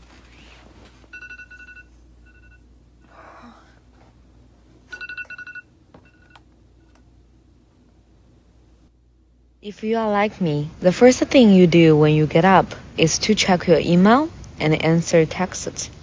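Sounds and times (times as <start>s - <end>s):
bedding rustling: 0.0s - 2.4s
electronic alarm beeping: 1.1s - 2.6s, 4.9s - 6.4s.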